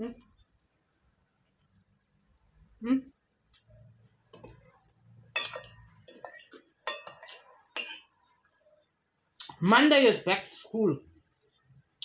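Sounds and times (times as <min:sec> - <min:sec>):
cutlery clinking on dishes: 0:04.3 - 0:08.2.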